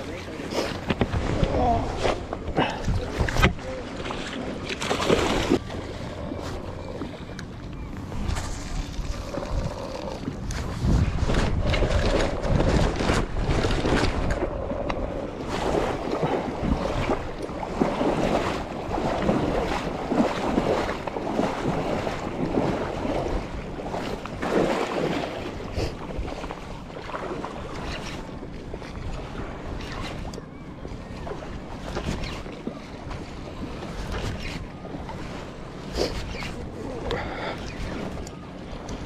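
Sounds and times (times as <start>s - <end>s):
wind buffeting microphone: 0.8s - 39.0s.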